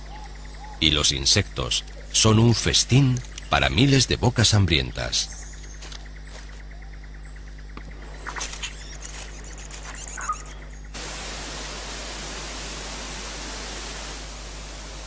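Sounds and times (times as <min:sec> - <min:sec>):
faint chirps and clicks: 0:00.0 - 0:11.0
steady even hiss: 0:10.9 - 0:15.0.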